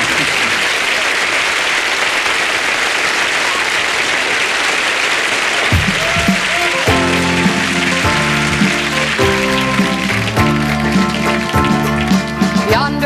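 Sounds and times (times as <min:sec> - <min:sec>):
audience applauding: 0:00.0 - 0:12.8
music with drum hit: 0:05.8 - 0:13.0.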